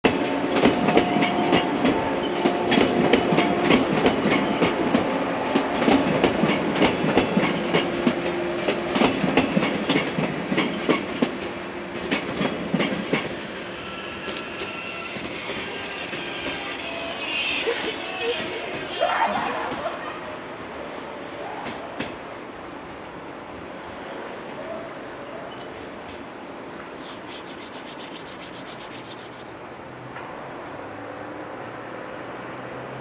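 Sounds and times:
train wheels clacking over rail joints: 0.1s - 13.4s.

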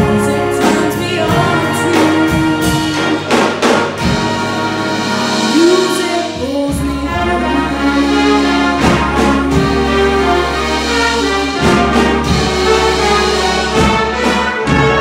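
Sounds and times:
big band playing: 0.0s - 15.0s.

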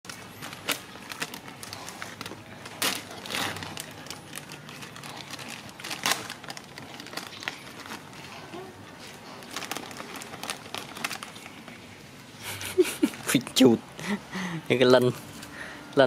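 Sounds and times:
plastic snack packet crinkling: 0.1s - 11.9s.

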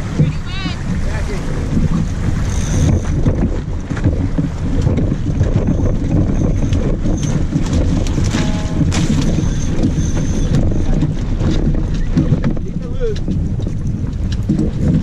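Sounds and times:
wind buffeting microphone: 0.0s - 15.0s
knocks and clicks: 1.7s - 15.0s
high squeak: 2.4s - 3.2s, 8.3s - 11.0s.

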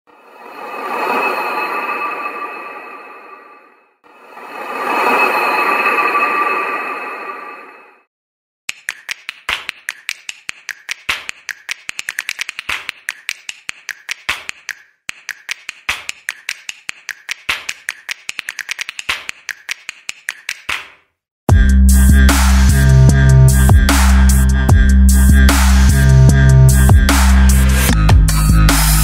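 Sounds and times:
sharp clicks or taps: 8.7s - 21.0s.

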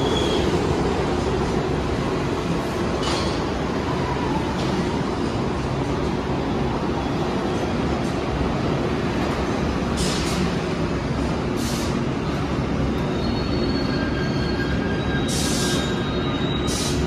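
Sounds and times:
subway train rumble: 0.0s - 17.0s
faint high wheel squeal: 12.9s - 17.0s.

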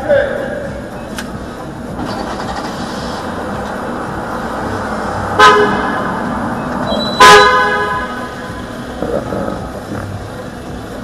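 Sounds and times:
van horn honking: 5.2s - 9.6s.

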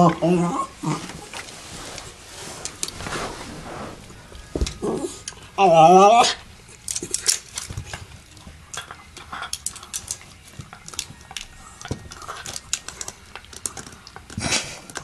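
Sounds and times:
teeth and paws on plastic: 6.6s - 15.0s.

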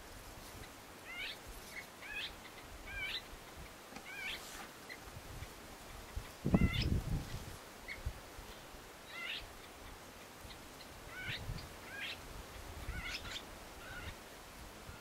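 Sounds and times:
bird wavering call: 4.0s - 4.5s.

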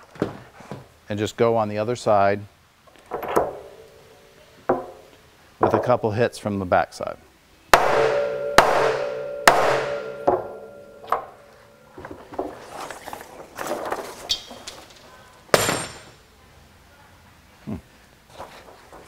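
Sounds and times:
mallet striking metal die: 7.8s - 11.4s
sharp knock: 7.8s - 11.4s.

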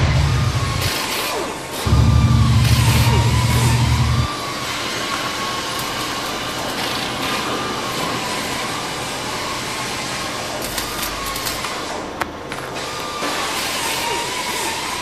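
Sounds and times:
machine rushing hiss with whine: 0.0s - 4.9s
crackles: 1.8s - 4.3s.

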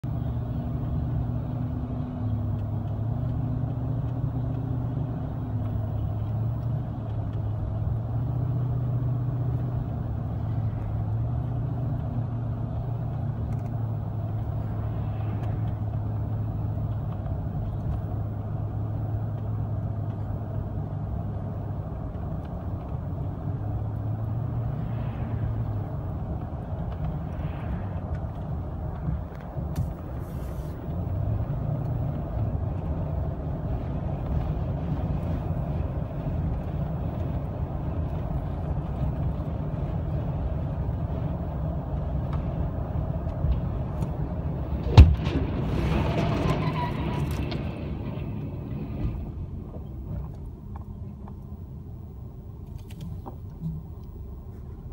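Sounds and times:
car engine hum: 0.0s - 54.9s
tyre noise on road: 0.0s - 54.9s.

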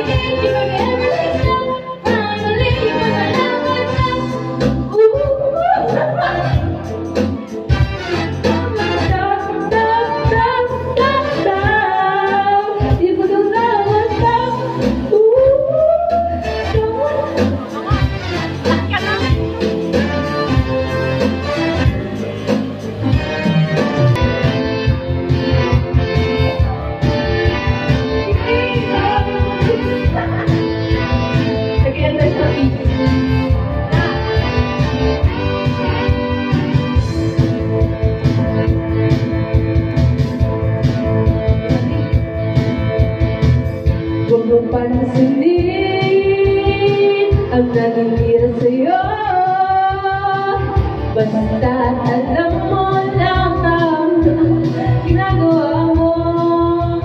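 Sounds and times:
woman singing into a microphone: 0.0s - 7.0s, 8.5s - 22.2s, 28.0s - 34.8s, 44.2s - 57.0s
instrumental backing track with beat: 0.0s - 57.0s.

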